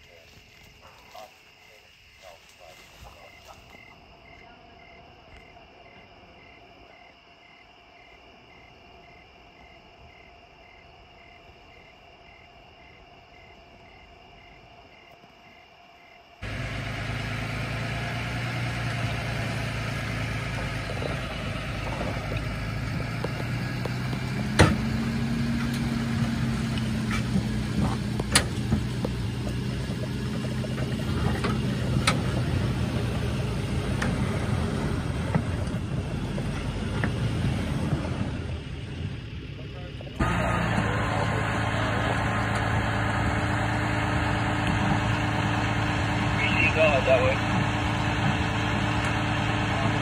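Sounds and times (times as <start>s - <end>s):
vehicle engine idling: 16.3s - 50.0s.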